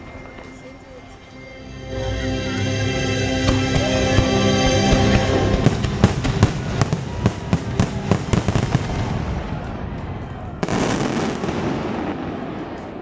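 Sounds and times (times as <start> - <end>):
show music: 0.0 - 7.7
fireworks bangs: 3.5 - 13.0.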